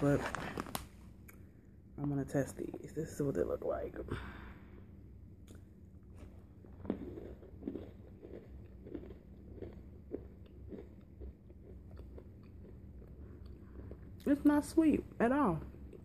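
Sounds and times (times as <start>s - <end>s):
person chewing crunchy snack: 5.4s - 14.3s.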